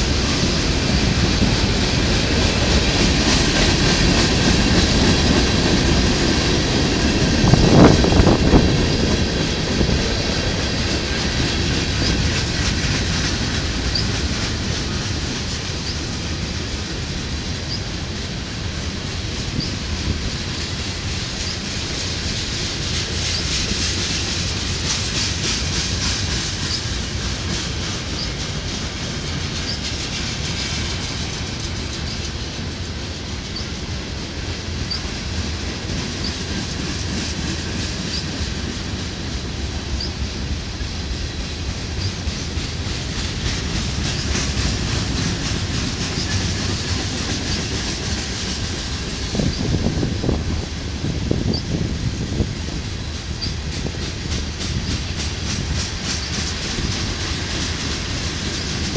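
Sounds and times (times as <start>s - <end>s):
freight train rolling past: 0.0s - 58.9s
wheels clattering over rail joints: 41.1s - 58.9s.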